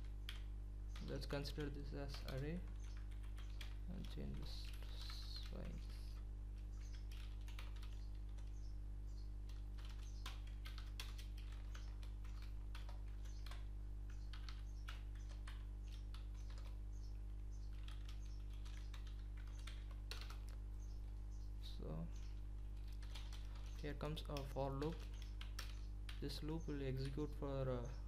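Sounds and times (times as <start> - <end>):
low electrical hum: 0.0 - 28.0
keyboard typing clicks: 9.5 - 16.8, 17.7 - 20.6.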